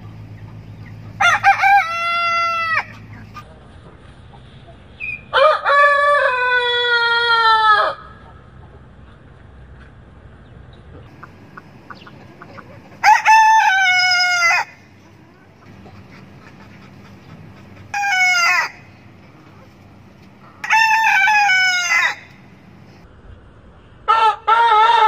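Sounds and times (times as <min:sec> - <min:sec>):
faint chicken clucks: 0:00.0 - 0:10.0, 0:10.7 - 0:22.1
rooster crowing: 0:01.2 - 0:02.9, 0:05.3 - 0:08.1, 0:13.0 - 0:14.8, 0:17.9 - 0:18.9, 0:20.6 - 0:22.4.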